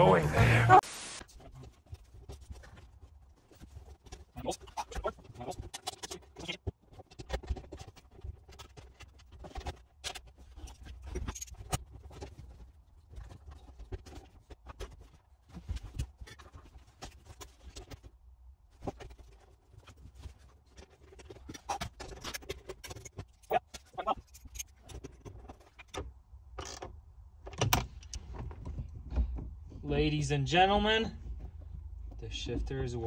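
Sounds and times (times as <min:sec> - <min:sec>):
plastic and metal clicks and rattles: 0:03.6 - 0:18.1.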